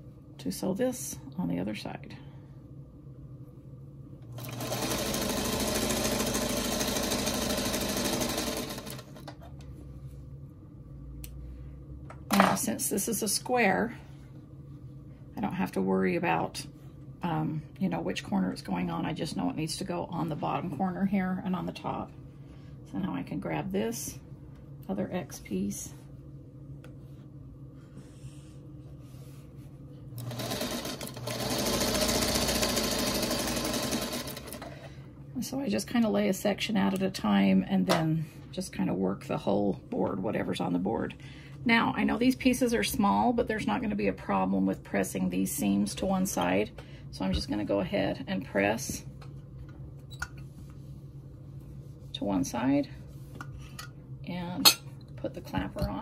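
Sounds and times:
sewing machine stitching: 0:04.4 - 0:09.3, 0:30.2 - 0:34.7.

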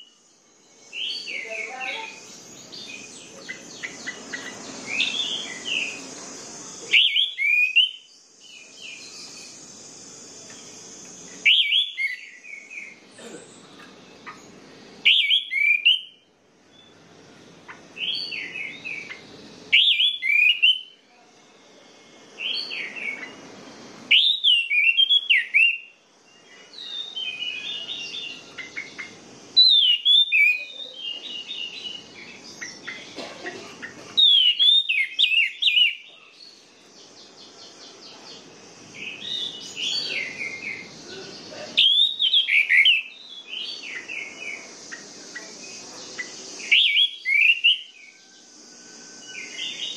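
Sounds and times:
bird twittering: 0:00.9 - 0:16.2, 0:17.6 - 0:21.0, 0:24.1 - 0:25.9, 0:26.6 - 0:38.4, 0:39.0 - 0:48.2
bird singing whistled phrases: 0:06.8 - 0:09.6, 0:11.4 - 0:13.0, 0:15.0 - 0:16.2, 0:18.0 - 0:21.0, 0:24.1 - 0:25.9, 0:26.8 - 0:33.1, 0:34.2 - 0:36.1, 0:41.8 - 0:45.5, 0:46.2 - 0:48.2.

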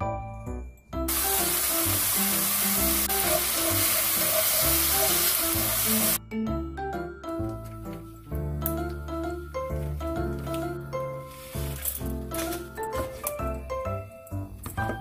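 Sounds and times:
light background music: 0:00.0 - 0:15.0
meat sizzling in a pan: 0:01.1 - 0:06.2.

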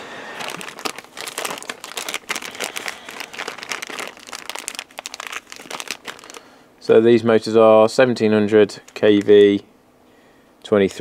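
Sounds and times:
plastic bag crinkling: 0:00.0 - 0:06.6, 0:08.8 - 0:09.5.

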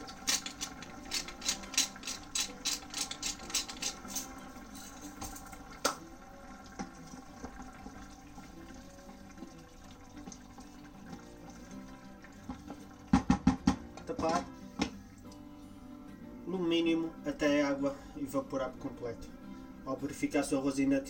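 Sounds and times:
pepper mill grinding: 0:00.0 - 0:05.6
rice simmering in water: 0:05.6 - 0:13.1.

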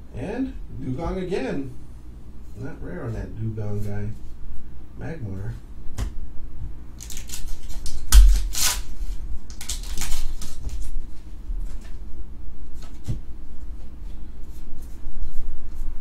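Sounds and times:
card handling: 0:07.0 - 0:08.9, 0:09.5 - 0:11.0
foil wrapper crinkling and tearing: 0:07.0 - 0:11.0.

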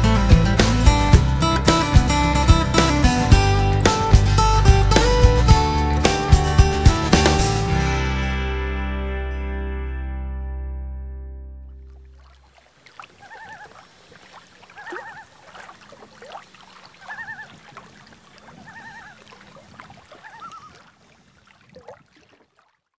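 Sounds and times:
animal's short wavering call: 0:13.1 - 0:13.9, 0:14.6 - 0:15.4, 0:16.8 - 0:17.7, 0:18.4 - 0:20.9.

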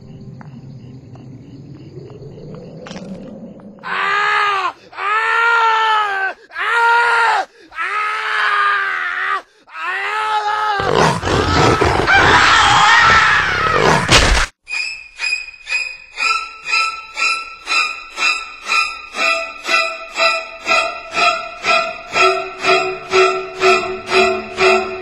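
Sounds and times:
man screaming and wailing: 0:03.8 - 0:14.1.

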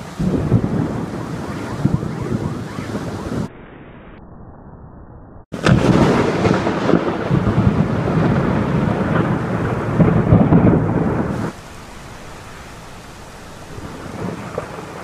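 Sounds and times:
heavy rain: 0:00.0 - 0:03.5, 0:05.5 - 0:15.0
loud thunder rumbling: 0:00.0 - 0:03.5, 0:05.5 - 0:15.0.

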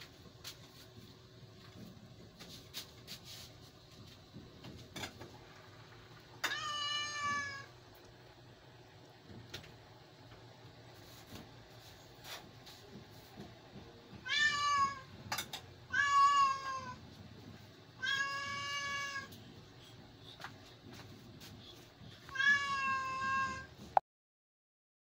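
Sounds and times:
cat meowing: 0:06.4 - 0:07.7, 0:14.2 - 0:15.1, 0:15.9 - 0:17.0, 0:18.0 - 0:19.3, 0:22.3 - 0:23.8.

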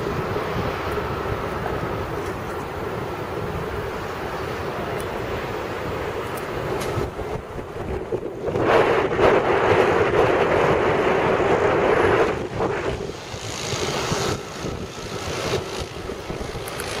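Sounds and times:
wind rushing over microphone: 0:00.0 - 0:17.0.

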